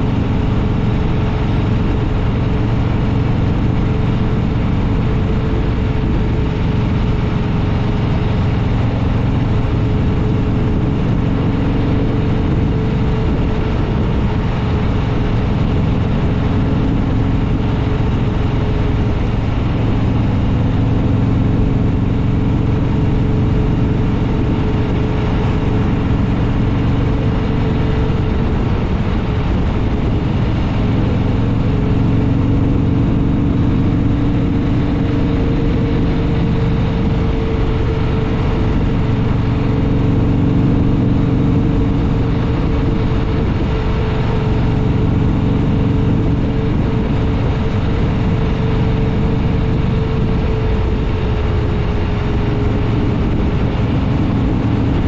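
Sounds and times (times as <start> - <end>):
motorcycle engine cruising: 0.0 - 55.0
steady rushing noise: 0.0 - 55.0.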